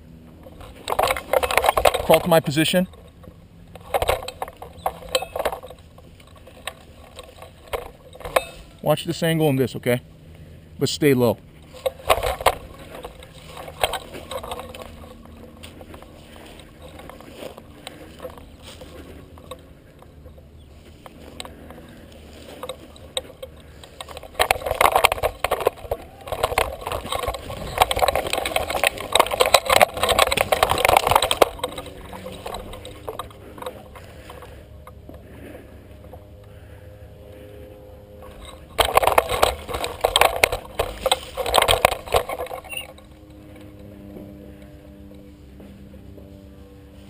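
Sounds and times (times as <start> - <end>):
crawling over dry leaves: 11.0 - 47.0.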